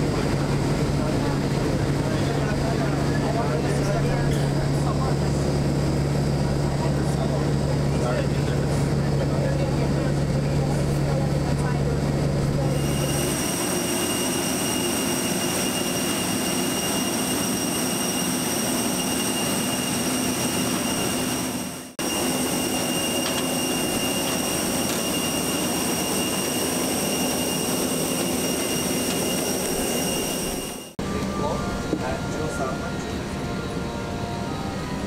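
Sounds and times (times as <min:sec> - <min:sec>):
thin high whine: 0:12.7 - 0:35.0.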